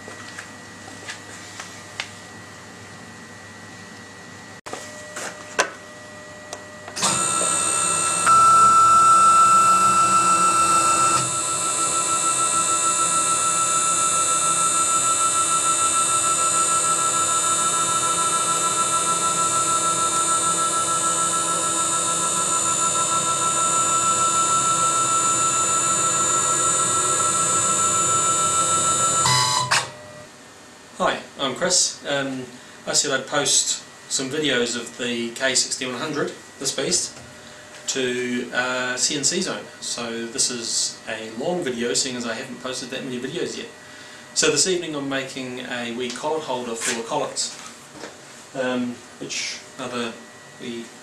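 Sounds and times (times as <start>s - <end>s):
router spindle whine: 5.0s - 30.2s.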